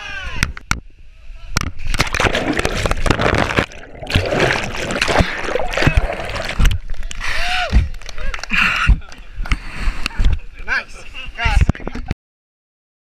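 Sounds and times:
water churning and splashing underwater: 0:01.8 - 0:08.1.

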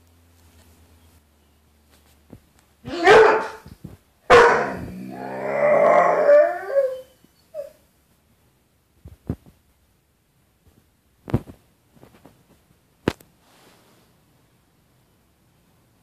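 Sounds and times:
dog barking: 0:02.9 - 0:03.6, 0:04.3 - 0:05.0
dog howling: 0:02.9 - 0:03.6, 0:04.3 - 0:07.7.

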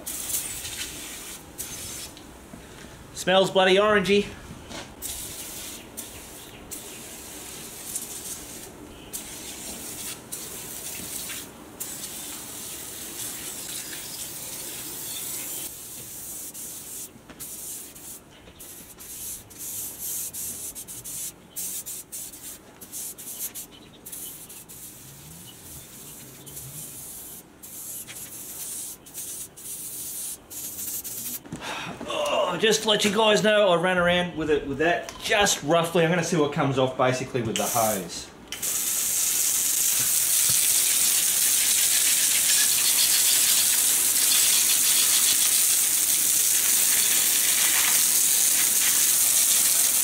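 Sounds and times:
aerosol spray hissing: 0:05.0 - 0:31.4, 0:38.6 - 0:50.0.

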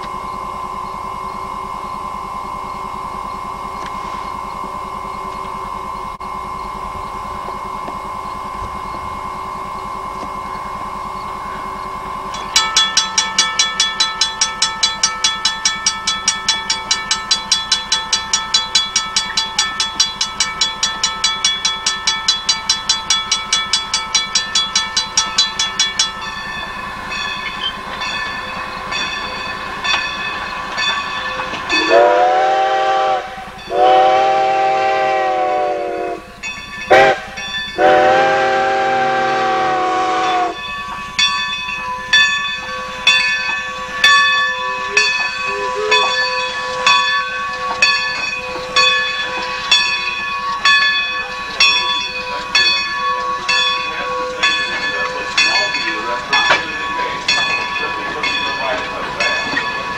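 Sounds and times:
train wheels clicking over rail joints: 0:00.0 - 0:59.9
steam whistle blasts: 0:31.7 - 0:36.3, 0:36.9 - 0:40.6, 0:43.9 - 0:47.2.

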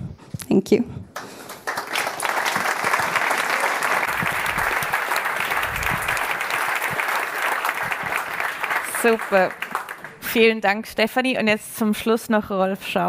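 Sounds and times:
audience applauding: 0:01.2 - 0:10.3.

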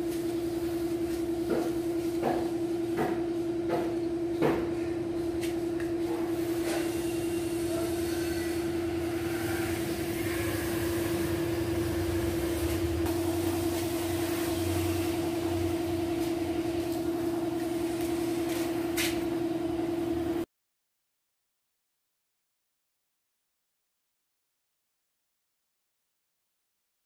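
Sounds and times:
steady machine hum: 0:00.0 - 0:20.5.

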